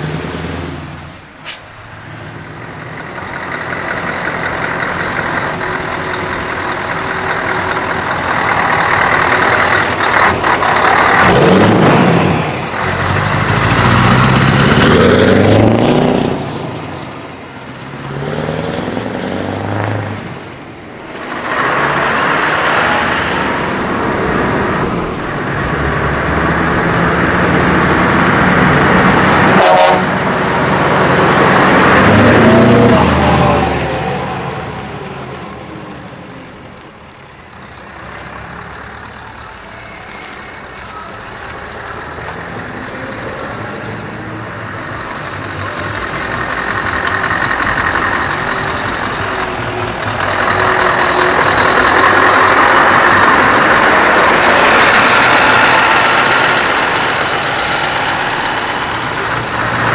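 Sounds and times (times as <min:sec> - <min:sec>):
truck engines revving and passing: 0:00.0 - 0:59.9
truck horn: 0:29.3 - 0:30.5.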